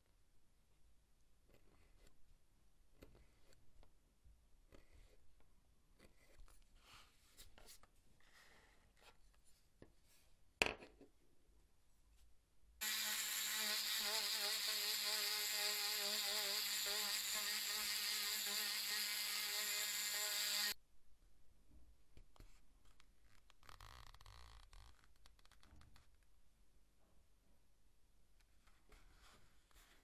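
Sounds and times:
electric rotary tool whining: 0:12.8 - 0:20.8.

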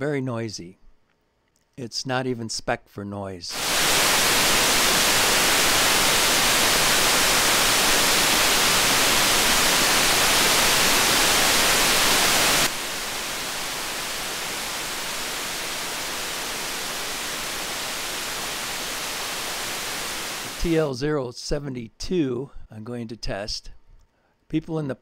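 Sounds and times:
steady electronic hiss: 0:03.5 - 0:21.0.

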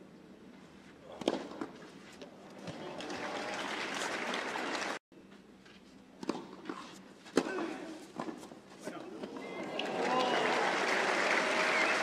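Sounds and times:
tennis ball struck with racquet: 0:01.2 - 0:01.7
crowd applause: 0:02.8 - 0:05.0, 0:09.6 - 0:12.0.

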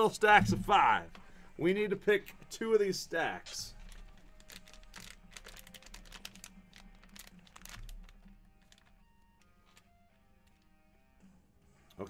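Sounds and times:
card packs crinkling and clicking: 0:03.6 - 0:10.7.

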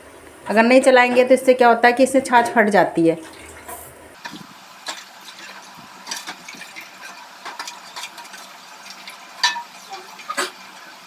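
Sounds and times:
ladle clinking and scraping pot: 0:03.7 - 0:10.6.

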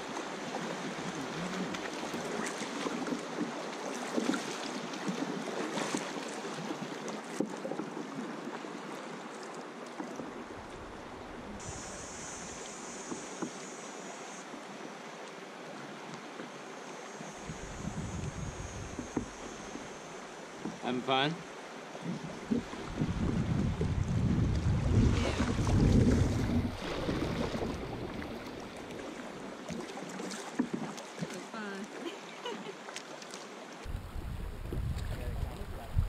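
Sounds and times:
river water rippling and splashing: 0:00.0 - 0:36.0.

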